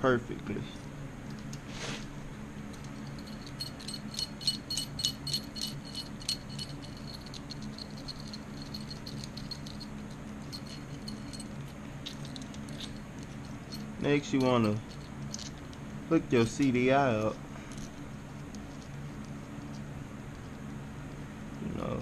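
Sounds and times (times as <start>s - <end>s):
steady low hum: 0.0s - 22.0s
small metal parts rattling: 2.7s - 19.8s.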